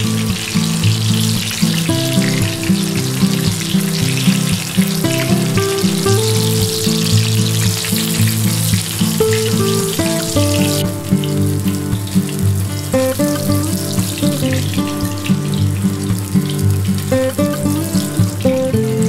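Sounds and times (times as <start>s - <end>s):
instrumental music: 0.0s - 19.0s
slices sizzling in oil: 0.0s - 19.0s.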